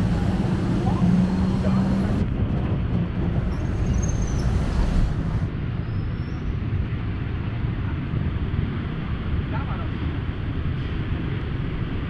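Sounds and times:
road traffic rumble: 0:00.0 - 0:06.0.

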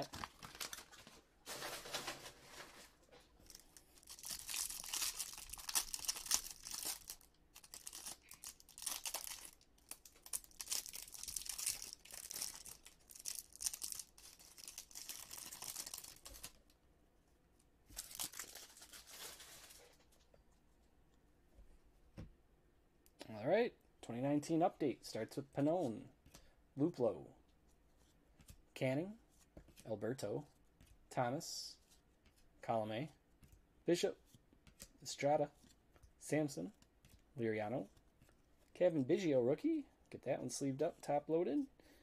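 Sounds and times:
wrapper tearing and crinkling: 0:00.0 - 0:02.7, 0:03.4 - 0:16.6, 0:17.9 - 0:20.0.

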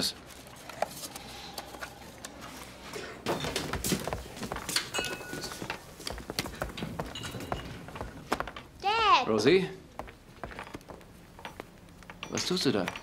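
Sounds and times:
dishes and cutlery clinking: 0:04.7 - 0:08.0, 0:11.5 - 0:13.0.

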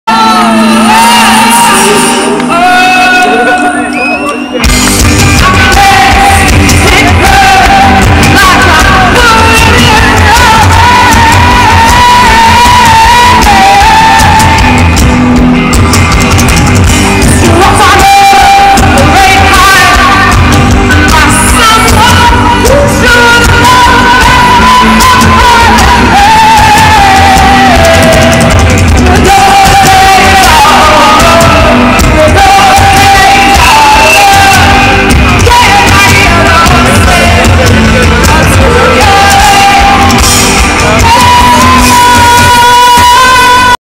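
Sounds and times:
woman singing: 0:00.1 - 0:03.8, 0:05.2 - 0:15.0, 0:17.2 - 0:43.8
live rock music: 0:00.1 - 0:43.8
crowd shouting along: 0:40.8 - 0:43.8.

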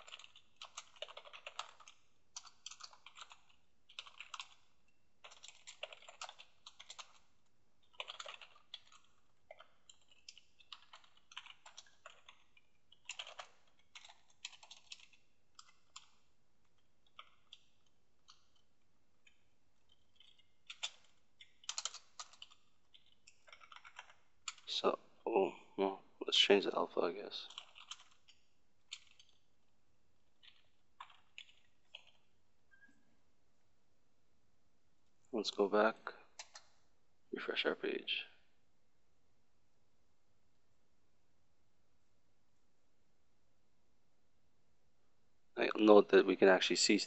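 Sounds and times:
typing on computer keyboard: 0:00.0 - 0:24.8, 0:27.5 - 0:29.4, 0:30.4 - 0:32.9, 0:36.4 - 0:36.8.

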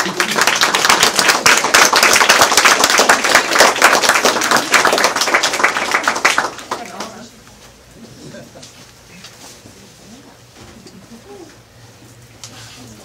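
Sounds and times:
crowd applauding: 0:00.0 - 0:07.3.

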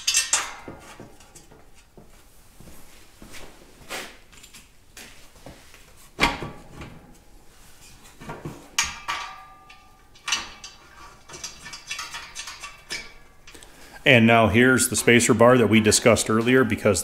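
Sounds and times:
metal parts clanking: 0:00.0 - 0:02.0, 0:08.2 - 0:13.7.

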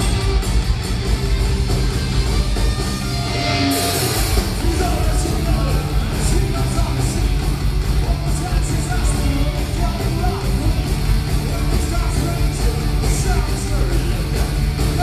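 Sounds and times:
live heavy metal band: 0:00.0 - 0:15.0
lead singer's voice: 0:04.4 - 0:15.0.

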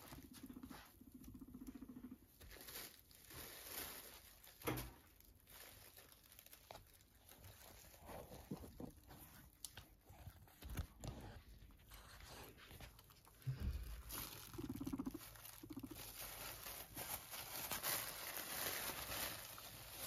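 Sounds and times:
plastic bag crinkling: 0:02.3 - 0:08.6, 0:12.8 - 0:20.0.

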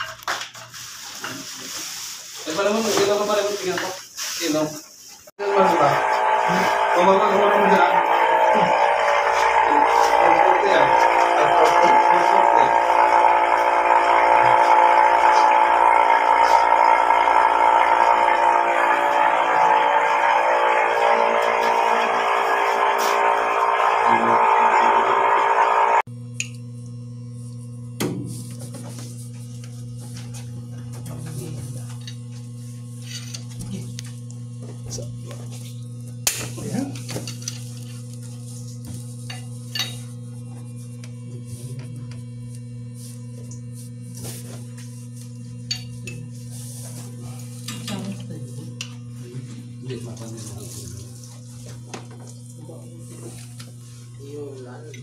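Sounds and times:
machinery drone: 0:05.4 - 0:26.1.

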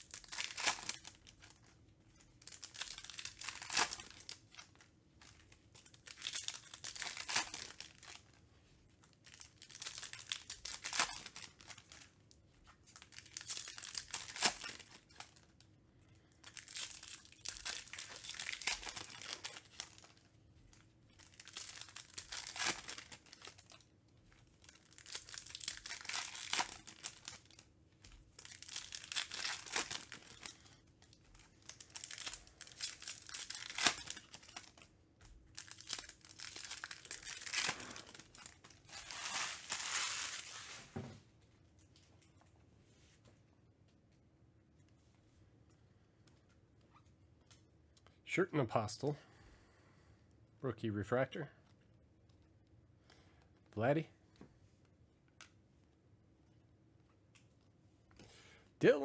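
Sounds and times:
foil wrappers torn and crinkled: 0:00.0 - 0:01.7, 0:02.3 - 0:08.3, 0:09.0 - 0:12.3, 0:12.9 - 0:15.6, 0:16.4 - 0:20.3, 0:21.1 - 0:27.7, 0:28.3 - 0:34.9, 0:35.5 - 0:40.9.

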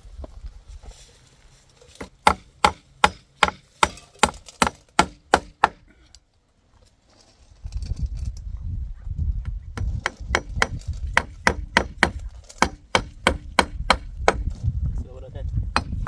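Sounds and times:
hammer striking wooden panel: 0:02.0 - 0:05.8, 0:09.8 - 0:14.4.

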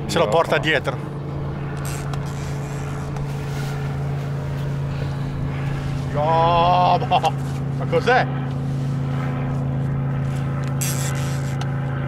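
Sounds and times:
boat engine humming: 0:00.0 - 0:12.0.

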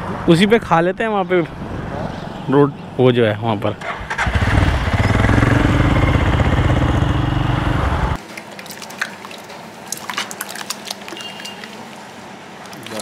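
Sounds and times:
motorcycle engine droning: 0:04.1 - 0:08.2.

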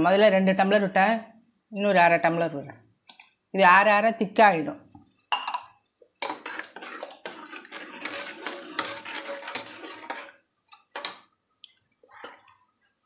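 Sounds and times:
ladle scraping against pot: 0:06.2 - 0:11.3, 0:12.0 - 0:12.7
liquid sloshing: 0:06.2 - 0:12.8.

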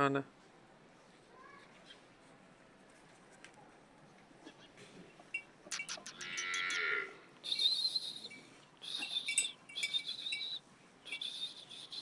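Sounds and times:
goat bleating: 0:06.0 - 0:07.2
high thin chirping: 0:07.5 - 0:12.0.

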